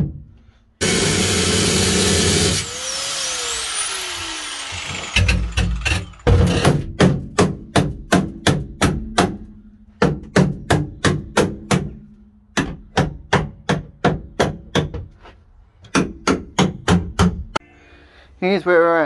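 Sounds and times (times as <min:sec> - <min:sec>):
hammer striking: 0:04.7 - 0:15.0.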